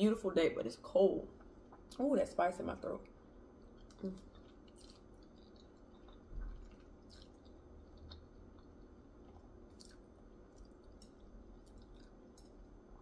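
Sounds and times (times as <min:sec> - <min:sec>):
chewing noodles: 0:03.5 - 0:13.0.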